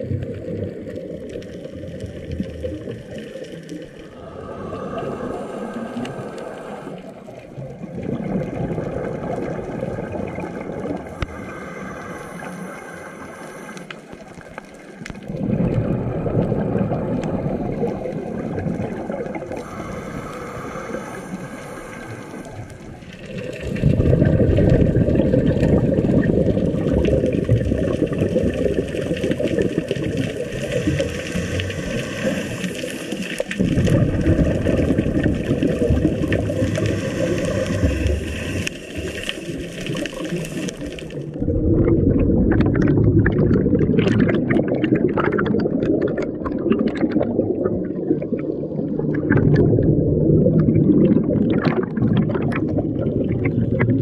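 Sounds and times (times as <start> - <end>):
bubbles rushing with crackling fizz: 0.0 - 54.0
underwater rumble of moving water: 0.0 - 54.0.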